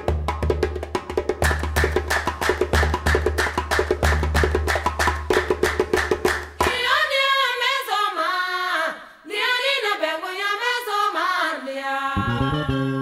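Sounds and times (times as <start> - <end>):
fast clicking percussion: 0.0 - 6.8
woman singing: 6.6 - 13.0
low bass note: 12.2 - 13.0.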